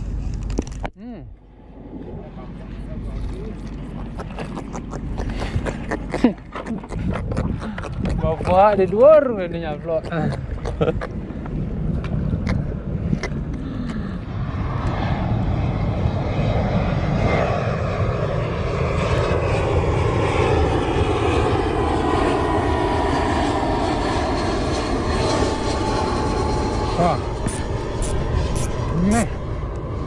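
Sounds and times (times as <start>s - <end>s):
jet airliner engine rush: 1.4s - 30.0s.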